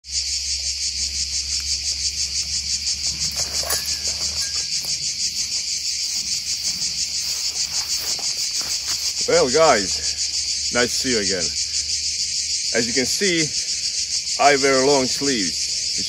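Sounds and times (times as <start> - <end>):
insects buzzing: 0.0 - 16.0
footsteps on dry forest litter: 0.1 - 10.6.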